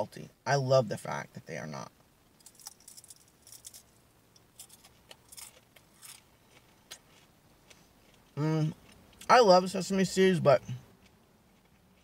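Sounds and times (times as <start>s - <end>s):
cracker crunching being chewed: 2.4s - 9.3s.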